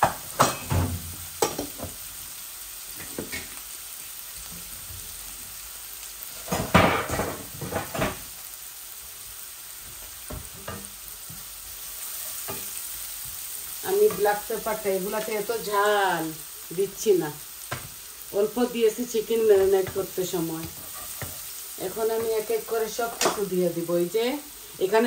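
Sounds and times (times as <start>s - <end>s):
vegetables sizzling in a wok: 0.0s - 25.0s
wooden spatula scraping a pan: 19.2s - 23.5s.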